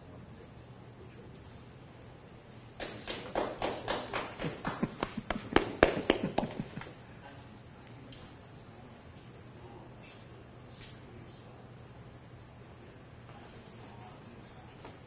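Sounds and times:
people clapping: 2.8s - 7.0s.

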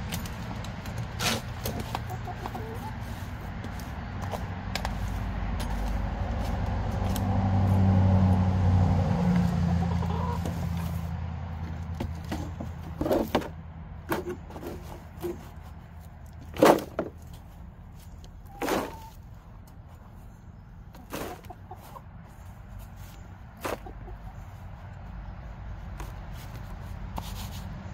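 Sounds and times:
coop being raked: 0.0s - 7.8s, 14.2s - 19.3s, 21.0s - 24.2s, 26.0s - 27.8s
low engine rumble: 0.0s - 27.9s
chickens clucking: 1.3s - 5.0s, 9.7s - 11.1s, 18.0s - 25.4s.

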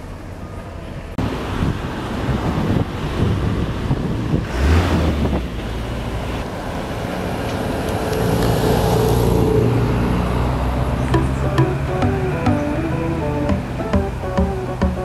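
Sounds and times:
background music: 11.2s - 15.0s.

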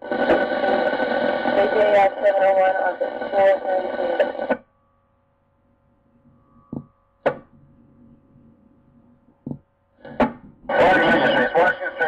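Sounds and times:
radio voice: 0.0s - 4.6s, 10.7s - 12.0s
faint steady hum: 0.0s - 12.0s.

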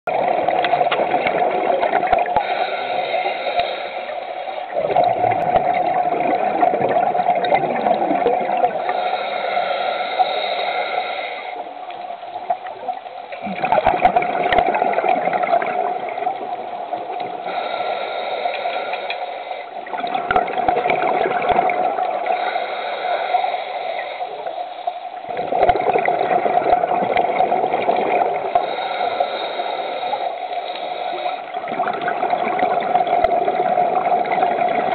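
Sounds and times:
exhaled air bubbling underwater: 0.1s - 34.9s
regulator hiss on inhale: 2.3s - 4.8s, 8.6s - 13.4s, 16.9s - 19.9s, 22.1s - 25.3s, 28.4s - 31.6s.

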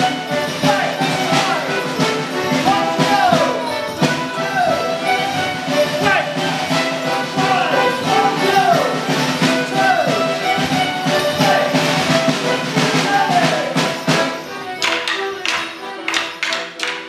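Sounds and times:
band playing dance tune: 0.0s - 17.0s
wooden sticks clacking together: 12.8s - 17.0s.

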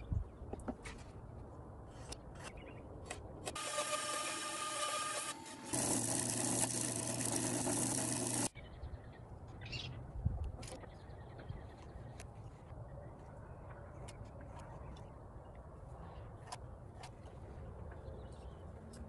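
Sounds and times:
band saw cutting wood: 3.5s - 8.5s.

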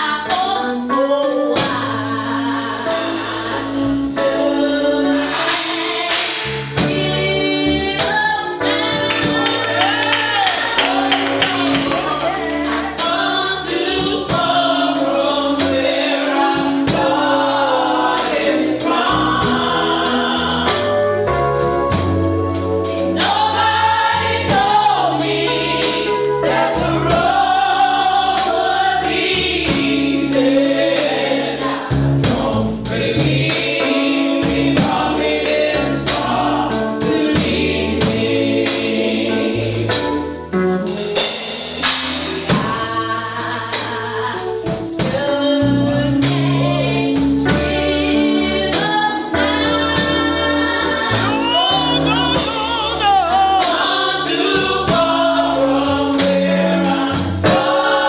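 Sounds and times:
women's vocal group singing gospel: 0.0s - 58.0s
tambourine shaken and struck: 5.1s - 58.0s
held bass notes: 44.7s - 58.0s.

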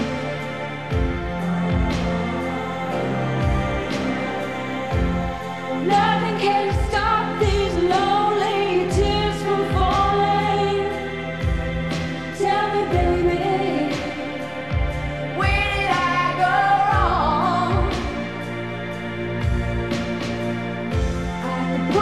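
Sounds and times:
synthesizer string chords: 0.0s - 22.0s
woman singing: 1.6s - 11.6s, 12.3s - 18.5s, 21.2s - 22.0s.

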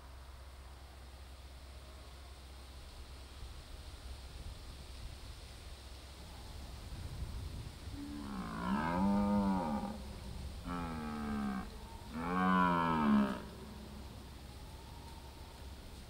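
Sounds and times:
deer stag roaring: 10.7s - 13.8s.

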